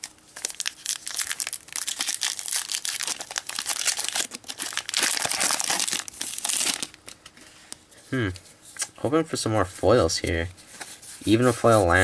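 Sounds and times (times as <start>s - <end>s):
foil wrapper crinkling and tearing: 0.0s - 7.2s.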